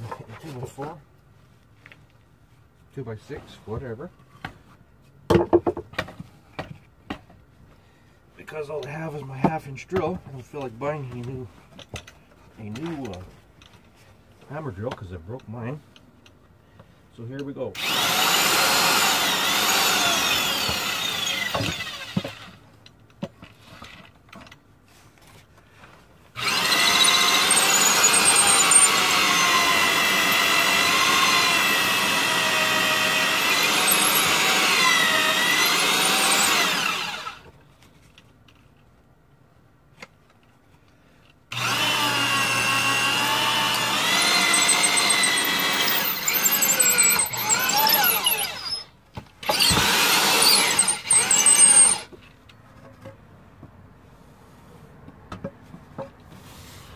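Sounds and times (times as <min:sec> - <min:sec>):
electric drill boring into concrete: 0:17.8 - 0:22.6, 0:26.4 - 0:37.5, 0:41.5 - 0:52.1.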